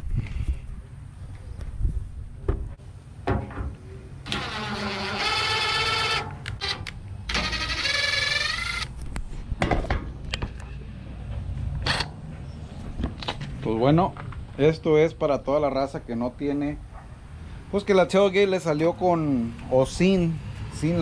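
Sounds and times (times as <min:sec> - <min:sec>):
cordless drill whining into metal: 0:04.3 - 0:08.9.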